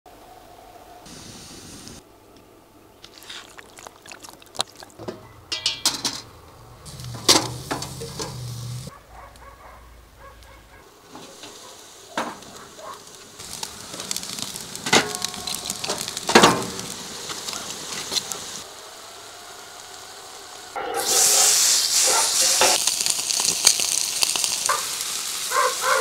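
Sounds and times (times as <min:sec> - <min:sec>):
charcoal crackles: 0:03.0 - 0:26.0
meat sizzling: 0:03.0 - 0:26.0
tongs clinking on grill: 0:05.4 - 0:06.3.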